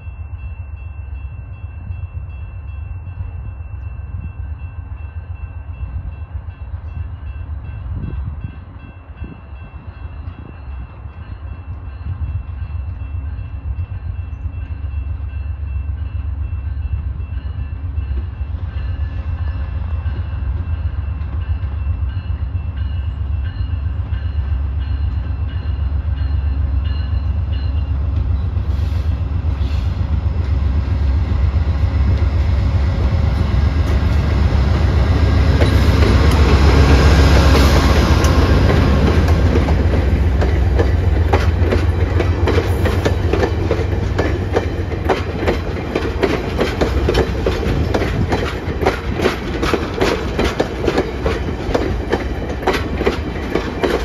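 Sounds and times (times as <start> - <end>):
crossing bell ringing: 0.0 - 28.6
diesel locomotive rumble: 3.2 - 54.0.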